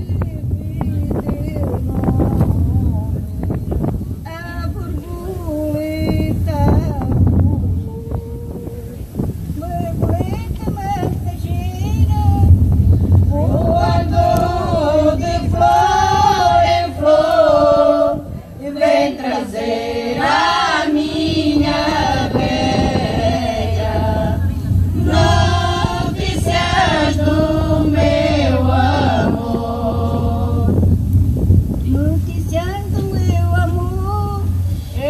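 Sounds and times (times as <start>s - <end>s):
women's choir singing unaccompanied: 13.3s - 33.8s.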